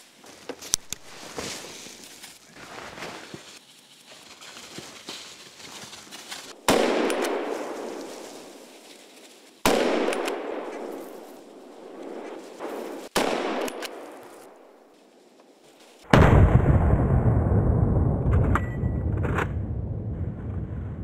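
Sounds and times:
rifle shots echoing: 0:06.6 - 0:08.6, 0:09.6 - 0:14.8, 0:16.1 - 0:17.5.

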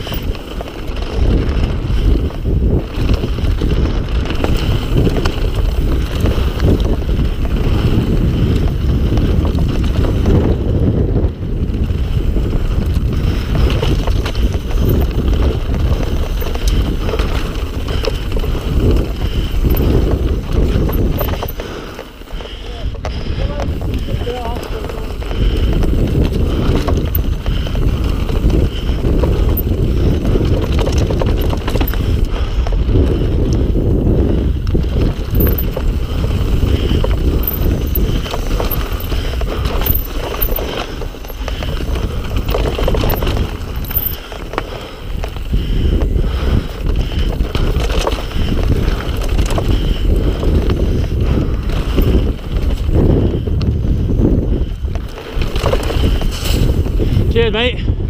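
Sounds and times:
wind buffeting microphone: 0:00.0 - 0:58.0
bike knocks and rattles: 0:11.8 - 0:57.3
tyres rumbling over stones: 0:13.0 - 0:32.3, 0:34.6 - 0:53.4, 0:54.5 - 0:57.3.

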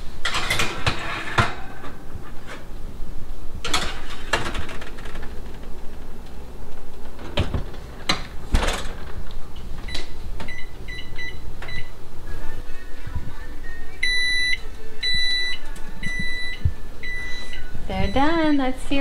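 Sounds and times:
baking sheet clattering on rack: 0:00.2 - 0:02.6
oven door thump: 0:07.1 - 0:10.6
microwave keypad beeps: 0:09.9 - 0:12.0, 0:14.0 - 0:18.4.

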